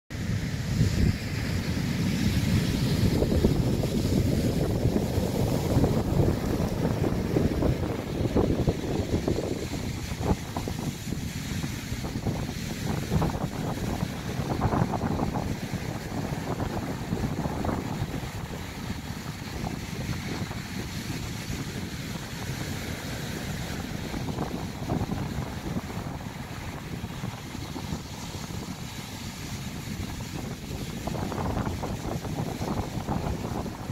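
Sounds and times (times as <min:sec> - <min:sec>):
waves breaking on beach: 0:00.1 - 0:33.9.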